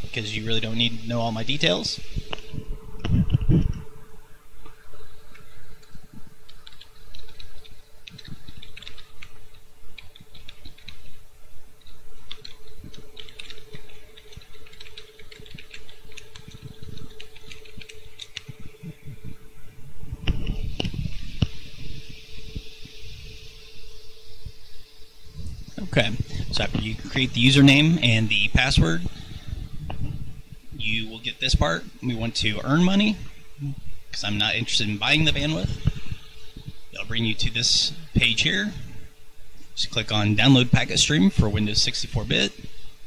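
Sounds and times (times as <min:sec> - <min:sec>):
steady low hum: 0:00.0 - 0:43.0
keyboard typing: 0:06.5 - 0:09.3, 0:10.0 - 0:11.0, 0:11.8 - 0:18.6.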